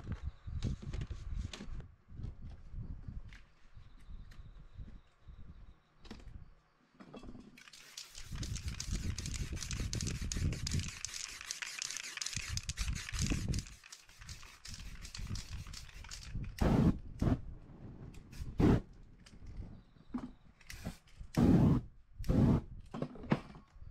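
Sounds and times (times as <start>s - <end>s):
paper stencil handled: 7.6s - 16.4s
aerosol spray can hissing: 7.6s - 16.9s, 18.4s - 18.8s.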